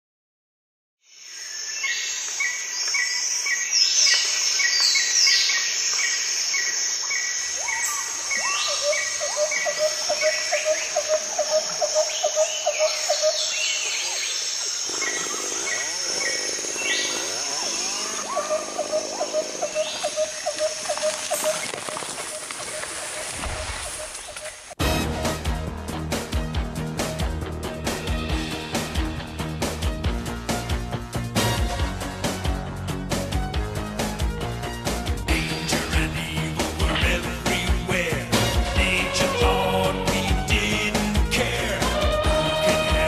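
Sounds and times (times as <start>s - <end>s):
birds calling: 1.9s - 24.8s
insect buzz: 5.6s - 24.7s.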